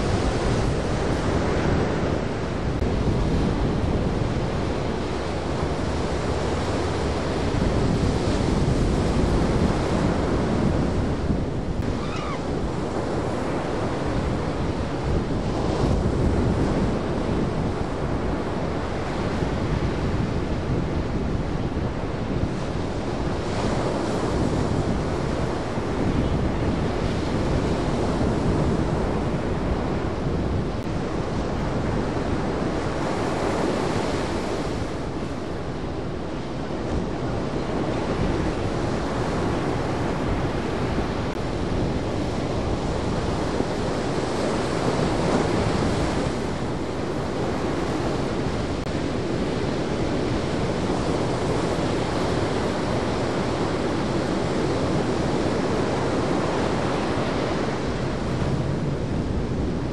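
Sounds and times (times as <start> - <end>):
ocean surf breaking: 0.0 - 17.1
wind on microphone: 0.0 - 59.9.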